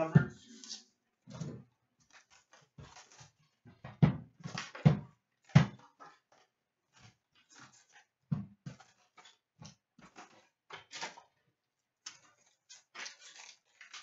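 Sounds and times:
card packs crinkling and rustling: 2.0s - 3.6s, 7.0s - 14.0s.

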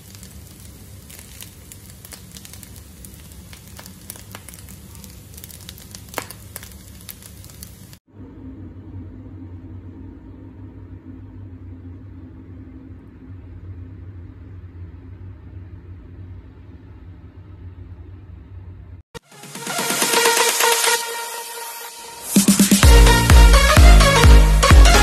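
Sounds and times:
steady low hum and rumble: 7.2s - 19.1s
loud electronic dance music: 19.2s - 25.0s.

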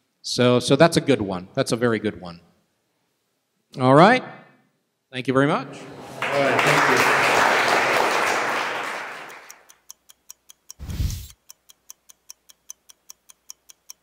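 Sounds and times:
audience applause: 5.7s - 9.6s
steady ticking: 9.5s - 14.0s.

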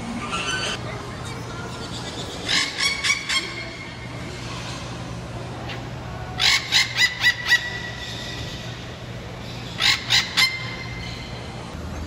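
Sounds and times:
parrots squawking: 0.0s - 4.0s, 6.4s - 8.6s, 9.7s - 11.3s.

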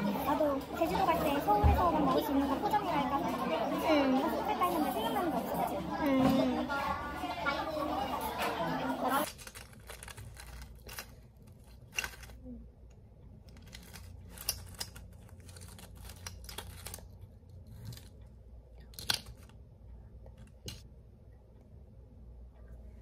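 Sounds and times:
low room hum: 0.0s - 23.0s
paper rustling and crinkling: 9.2s - 12.5s, 13.5s - 18.2s.

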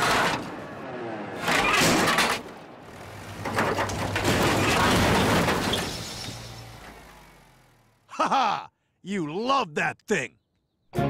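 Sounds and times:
car crashing: 0.0s - 8.0s
excavator engine hum: 0.0s - 10.2s.

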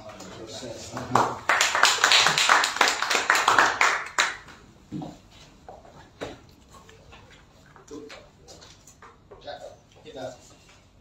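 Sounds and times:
small group clapping: 0.2s - 4.7s.

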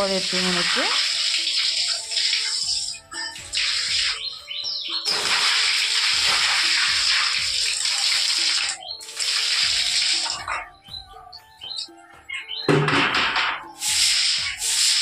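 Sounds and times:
water splashing on floor: 0.0s - 4.3s, 5.0s - 10.7s, 12.9s - 15.0s
broom sweeping wet floor: 5.1s - 10.4s, 13.7s - 15.0s.

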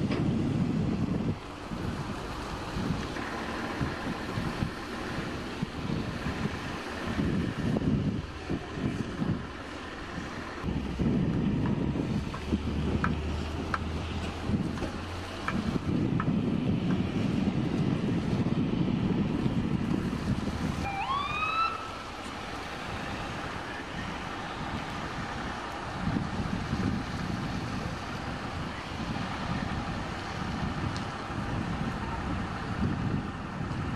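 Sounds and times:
vehicles passing on wet road: 0.0s - 33.9s
wind on microphone: 0.0s - 33.9s
siren whoop: 20.8s - 22.0s.

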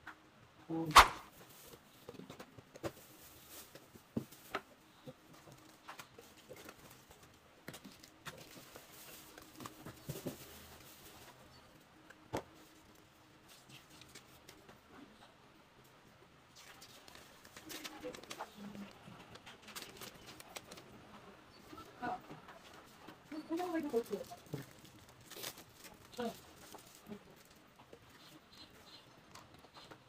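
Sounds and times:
sharp knock: 0.9s - 1.3s
rustling of plastic bags and paper: 2.8s - 11.8s, 16.6s - 28.4s.

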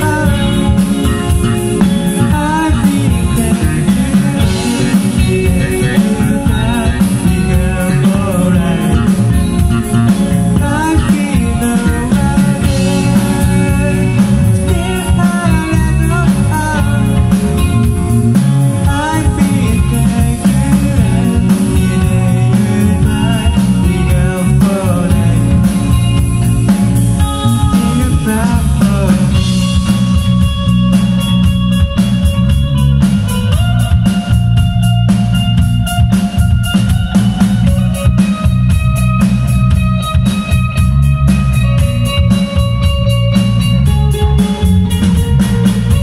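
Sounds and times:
person singing: 0.0s - 26.2s, 27.4s - 30.3s
held electric guitar notes: 0.0s - 46.0s
live rock band playing: 0.0s - 46.0s.

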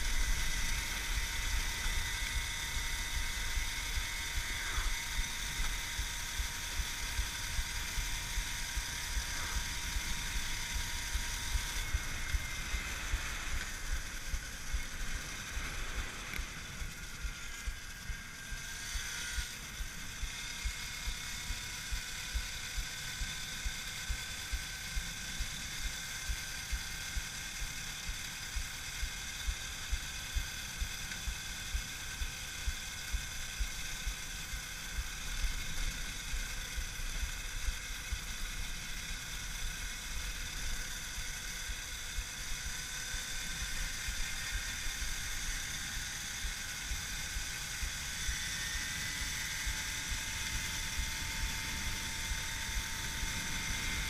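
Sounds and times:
electric motor whining: 0.0s - 54.0s
wind rumbling on microphone: 48.8s - 54.0s.

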